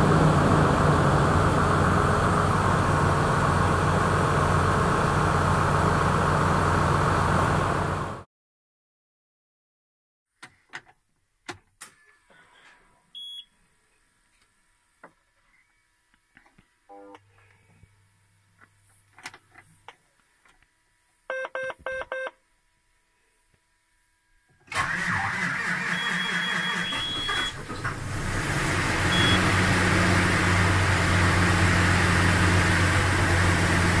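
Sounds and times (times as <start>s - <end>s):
diesel engine idling: 0.0s - 8.2s, 27.2s - 34.0s
engine starter cranking: 24.7s - 28.2s.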